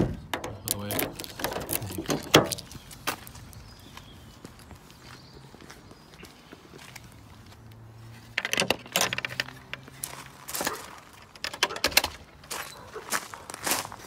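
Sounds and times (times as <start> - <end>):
keys jangling: 0.8 - 2.7.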